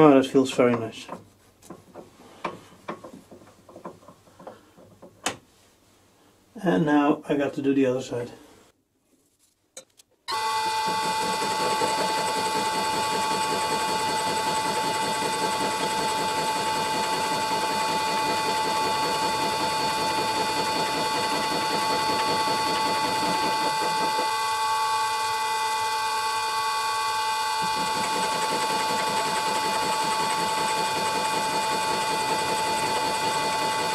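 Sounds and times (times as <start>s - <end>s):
lathe machine whine: 10.3s - 33.9s.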